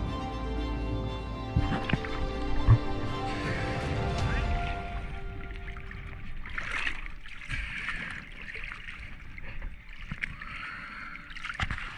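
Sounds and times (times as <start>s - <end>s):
water sloshing against inflatable boat: 1.5s - 11.9s.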